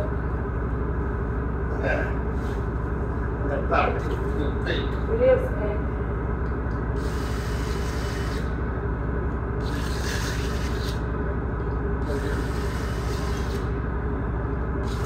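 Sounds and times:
electric buffer humming: 0:00.0 - 0:15.0
polishing pad rubbing metal: 0:07.0 - 0:08.6, 0:09.6 - 0:11.1, 0:12.0 - 0:13.8.

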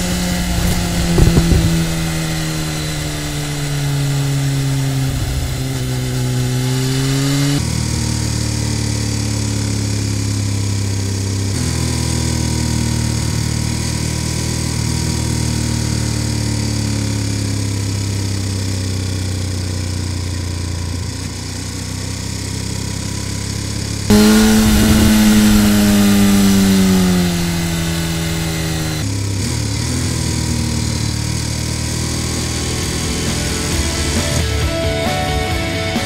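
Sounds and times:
motorcycle engine running: 0:00.0 - 0:36.0
wind hiss: 0:00.3 - 0:03.8, 0:24.1 - 0:28.9.

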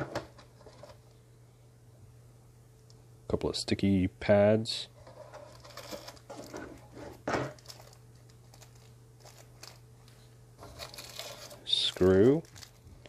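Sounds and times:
plastic bag rustling: 0:05.4 - 0:13.0.

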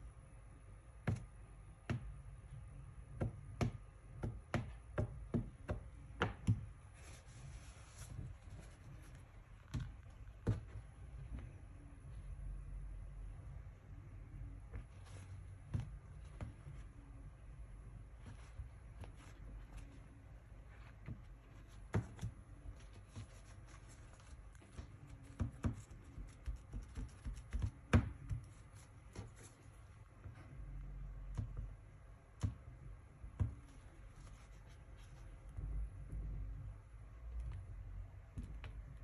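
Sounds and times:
cloth rubbing on phone screen: 0:06.7 - 0:12.9, 0:14.1 - 0:30.8, 0:33.5 - 0:36.6.

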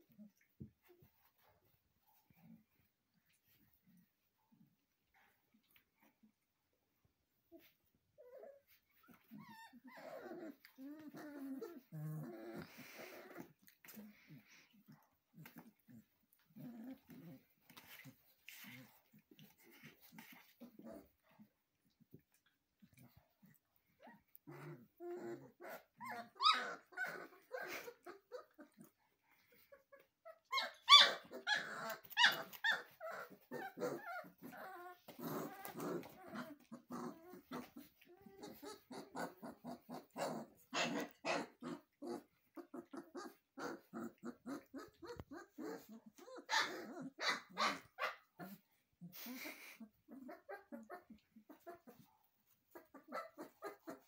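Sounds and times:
puppies growling: 0:07.4 - 0:54.0
puppies yipping and barking: 0:24.8 - 0:48.6, 0:49.2 - 0:54.0.

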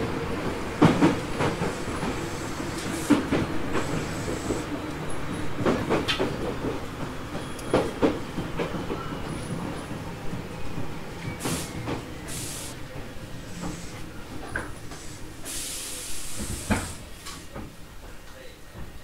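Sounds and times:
train clunks: 0:00.0 - 0:19.0
train low rumble: 0:00.0 - 0:19.0
compressed air hisses: 0:01.6 - 0:04.7, 0:11.4 - 0:12.8, 0:13.4 - 0:14.1, 0:14.8 - 0:17.1.

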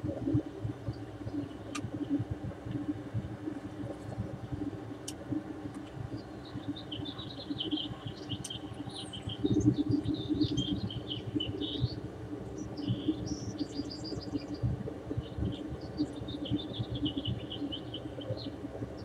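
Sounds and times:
small birds chirping: 0:05.9 - 0:12.0, 0:12.6 - 0:19.0.

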